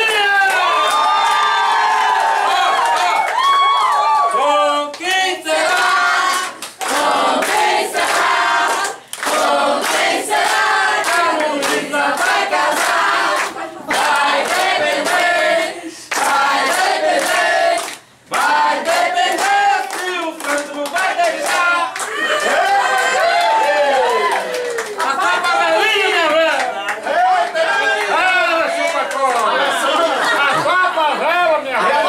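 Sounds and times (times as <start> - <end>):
people clapping along: 0.0 - 30.6
family singing a celebration song: 4.3 - 23.8.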